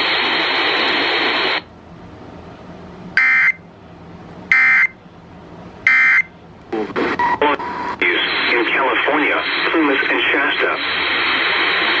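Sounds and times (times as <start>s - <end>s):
radio static bursts: 6.7s - 12.0s.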